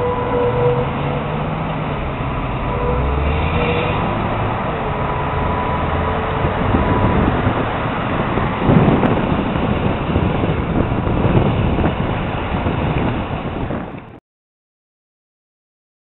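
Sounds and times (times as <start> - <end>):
road traffic passing: 0.0 - 14.2
wind rumble on microphone: 0.0 - 14.2.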